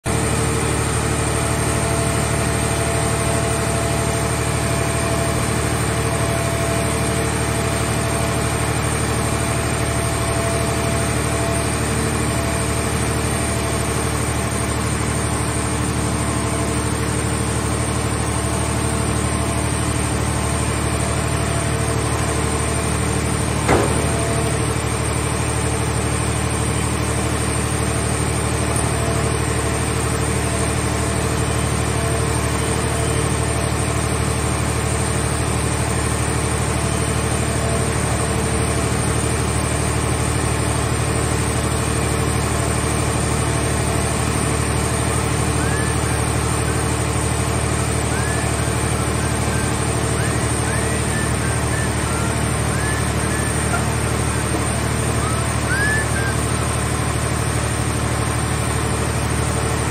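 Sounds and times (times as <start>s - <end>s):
hydraulic power unit droning: 0.1s - 59.9s
sharp knock: 23.7s - 24.5s.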